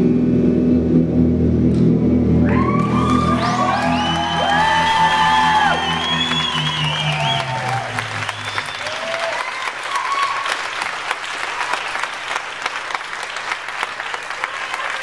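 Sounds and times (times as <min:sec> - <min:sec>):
low music notes: 0:00.0 - 0:08.8
whoops: 0:02.4 - 0:10.7
audience applauding and cheering: 0:02.4 - 0:15.0.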